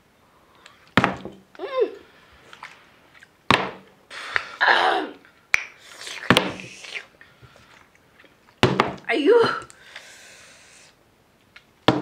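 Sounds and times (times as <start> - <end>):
person exclaiming: 1.6 - 2.0, 4.6 - 5.2, 9.1 - 9.7.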